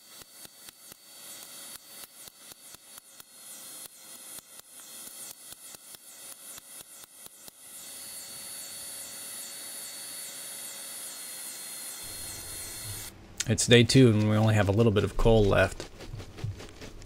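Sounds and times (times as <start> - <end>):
steady hiss with high whine: 12.0 - 13.9.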